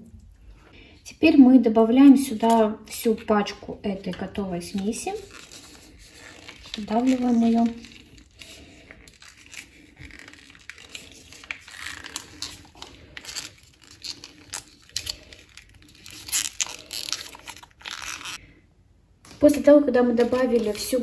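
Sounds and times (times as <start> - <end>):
packet crinkling and rustling: 4.1 - 18.4, 20.1 - 21.0.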